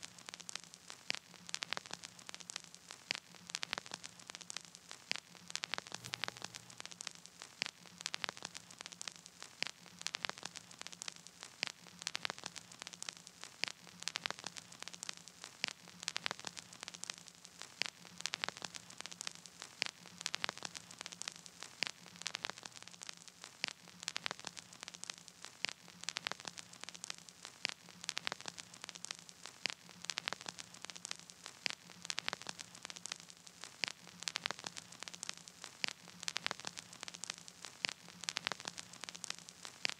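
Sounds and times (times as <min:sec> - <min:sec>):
faint hiss: 0:00.0 - 0:39.9
low steady hum: 0:06.0 - 0:07.1.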